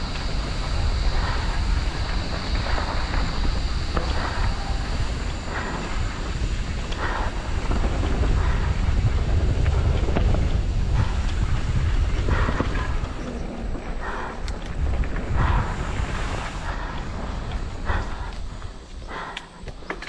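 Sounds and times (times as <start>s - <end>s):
wind buffeting camera: 0.0s - 20.0s
bike rattling clicks and knocks: 19.2s - 20.0s.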